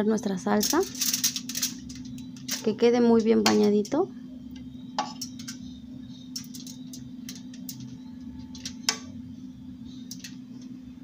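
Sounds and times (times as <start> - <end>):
steady low hum: 0.0 - 11.0
foil crinkling: 0.6 - 2.6.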